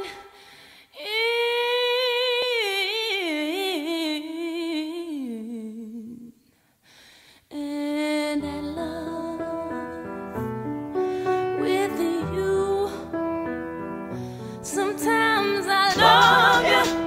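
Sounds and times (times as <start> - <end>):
piano chords: 8.4 - 17.0
unaccompanied voice singing: 15.0 - 17.0.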